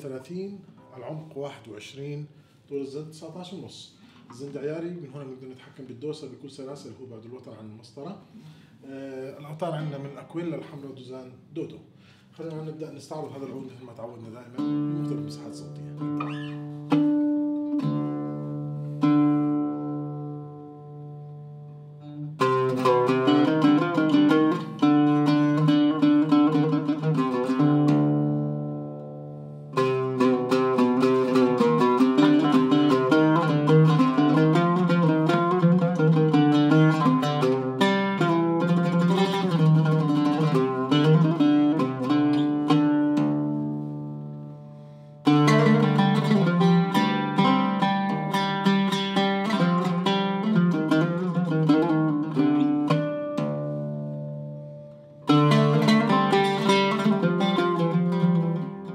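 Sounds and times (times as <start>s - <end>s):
oud played with plectrum: 0.0s - 58.9s.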